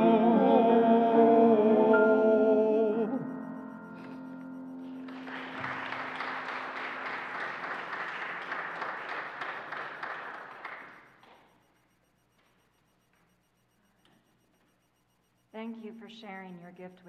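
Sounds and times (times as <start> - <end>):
piano chord ringing: 1.6 - 7.3
congregation applauding: 4.0 - 11.4.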